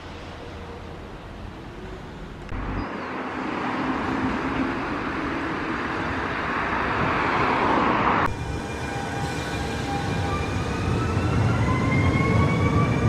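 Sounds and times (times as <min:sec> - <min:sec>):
passenger train passing: 0:00.0 - 0:13.0.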